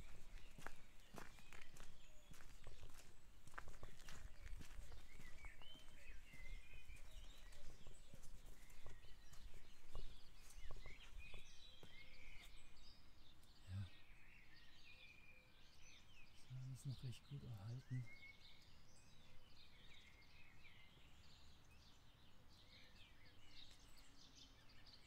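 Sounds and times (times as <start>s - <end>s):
footsteps: 0.0s - 12.5s
songbirds chirping: 0.0s - 25.0s.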